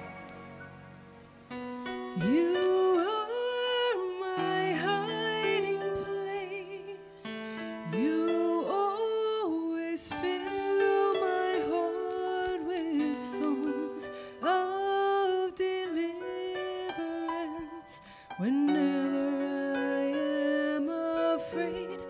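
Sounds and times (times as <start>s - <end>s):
sustained instrumental chords: 0.0s - 3.0s
woman singing into microphone: 2.1s - 22.0s.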